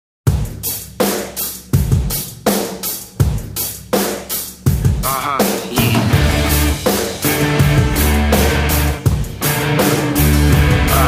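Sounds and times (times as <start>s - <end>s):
snare drum: 0.3s - 11.0s
kick drum: 1.8s - 2.2s.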